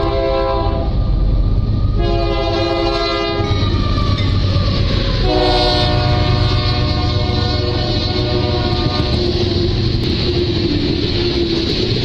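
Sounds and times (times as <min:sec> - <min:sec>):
train air horn blasts: 0:00.0 - 0:01.0, 0:02.0 - 0:03.8, 0:05.2 - 0:09.5
diesel locomotive engines rumbling: 0:00.0 - 0:12.0.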